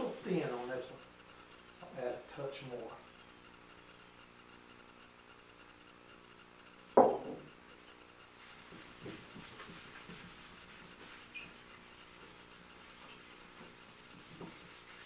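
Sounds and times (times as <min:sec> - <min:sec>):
paper towel rubbing wood: 0:00.0 - 0:01.0, 0:08.4 - 0:15.0
glass jar knocking on wood: 0:07.0 - 0:07.5.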